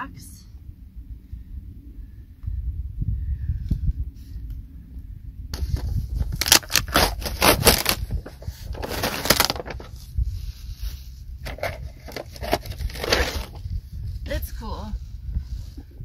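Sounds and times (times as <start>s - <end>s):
cardboard box rustling: 5.6s - 10.0s, 11.4s - 13.6s.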